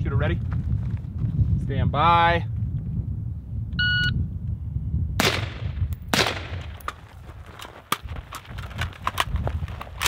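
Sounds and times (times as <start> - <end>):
running footsteps on dirt: 0.2 - 1.6, 6.8 - 10.0
suppressed rifle shots: 5.2 - 6.9.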